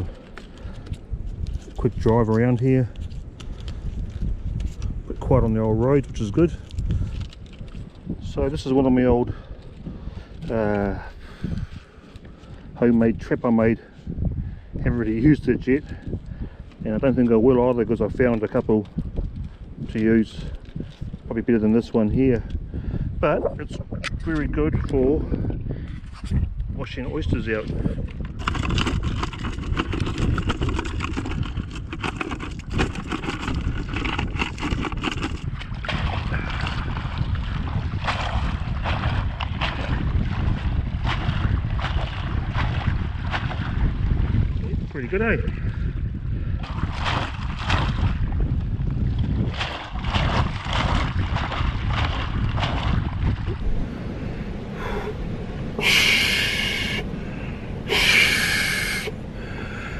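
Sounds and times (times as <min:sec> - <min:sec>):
wind rumble on microphone: 0:00.0 - 0:59.9
man breathing close to microphone: 0:11.0 - 0:12.8, 0:15.9 - 0:16.8, 0:22.6 - 0:23.2, 0:54.0 - 0:59.9
oysters clattering and scraping: 0:28.1 - 0:37.0
low rumble: 0:45.6 - 0:59.9.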